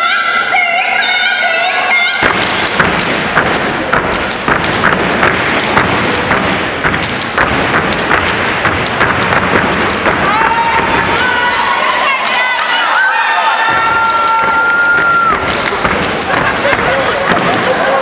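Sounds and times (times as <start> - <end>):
boots stomping on gym floor: 2.2 - 11.7, 13.5 - 18.0
people clapping in unison: 2.2 - 18.0.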